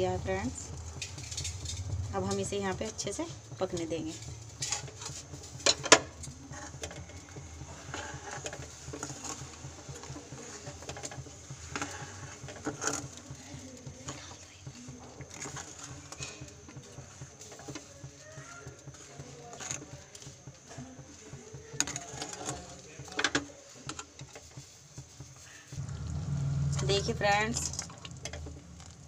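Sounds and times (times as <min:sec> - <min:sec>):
gas burner hum: 0:00.0 - 0:19.1, 0:25.7 - 0:29.0.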